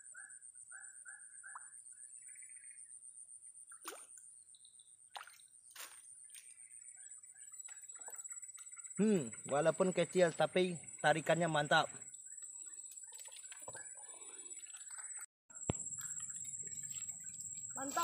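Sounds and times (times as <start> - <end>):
high-pitched insect drone: 6.6 - 18.0.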